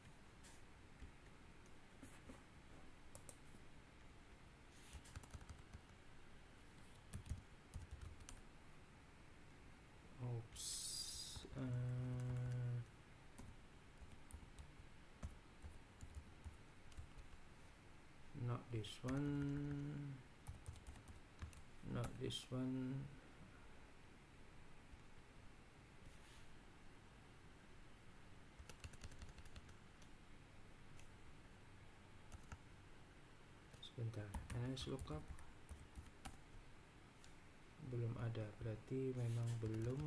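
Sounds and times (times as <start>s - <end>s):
computer keyboard keystrokes: 5.1s - 6.0s, 6.9s - 8.4s, 11.6s - 12.7s, 13.4s - 17.4s, 19.1s - 22.2s, 28.6s - 30.1s, 32.3s - 32.6s, 39.6s - 40.0s.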